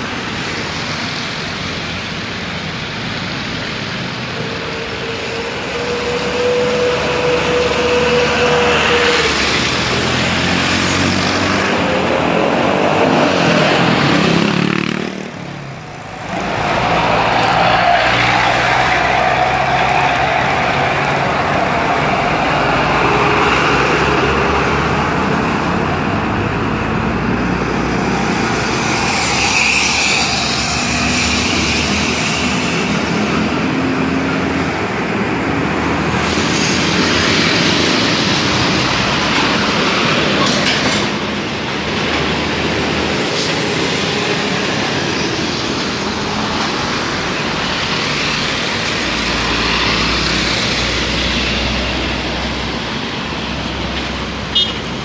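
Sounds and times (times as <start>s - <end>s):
diesel trucks driving past: 0.0s - 55.0s
motorcycles driving past: 4.9s - 24.6s.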